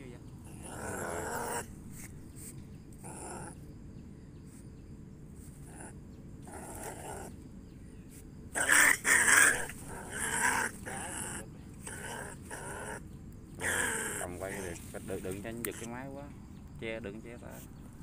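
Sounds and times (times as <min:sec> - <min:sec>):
squirrel growling calls: 0:00.0 - 0:03.7, 0:05.4 - 0:07.4, 0:08.5 - 0:16.1.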